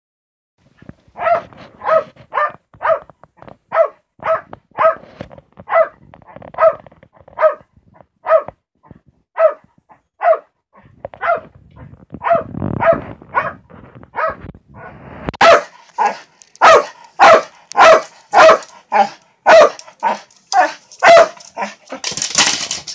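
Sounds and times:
dog barking sharply: 0:01.2 - 0:03.1, 0:03.7 - 0:05.0, 0:05.7 - 0:06.0, 0:06.6 - 0:06.8, 0:07.4 - 0:07.6, 0:08.2 - 0:08.6, 0:09.4 - 0:10.5, 0:11.2 - 0:11.5, 0:12.2 - 0:13.6, 0:14.2 - 0:14.4, 0:15.4 - 0:22.6.

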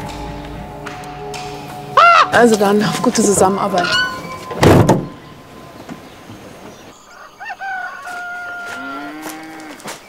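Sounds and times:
van door slamming: 0:04.5 - 0:05.3
rooster crowing: 0:07.1 - 0:09.8
cow mooing: 0:08.6 - 0:09.9.

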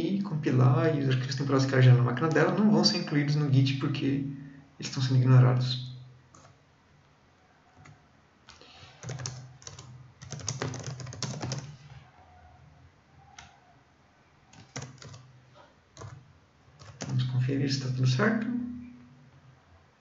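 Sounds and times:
typing on computer keyboard: 0:06.3 - 0:06.6, 0:07.8 - 0:11.9, 0:14.5 - 0:15.3, 0:15.9 - 0:16.2, 0:16.8 - 0:17.3.

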